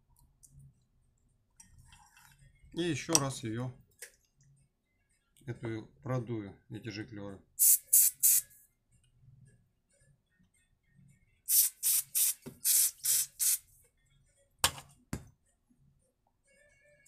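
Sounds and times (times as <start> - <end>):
aerosol spray hissing bursts: 7.6 - 8.5, 11.5 - 13.6.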